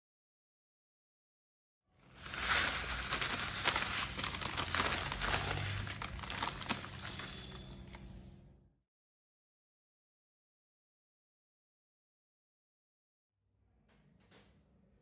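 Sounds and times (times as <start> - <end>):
crinkling plastic packet: 2.0 - 8.1
dry strands pattering into a bowl: 2.0 - 8.1.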